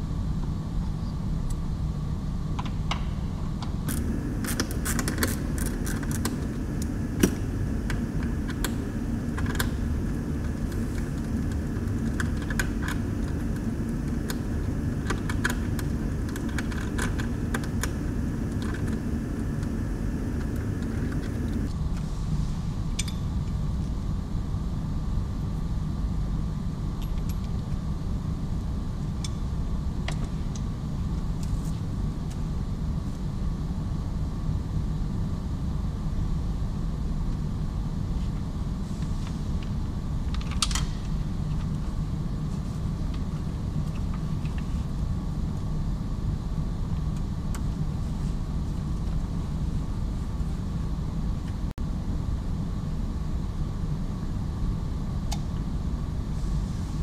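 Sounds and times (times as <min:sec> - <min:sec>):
faint steady hum: 0:00.0 - 0:57.0
low background rumble: 0:03.8 - 0:21.7.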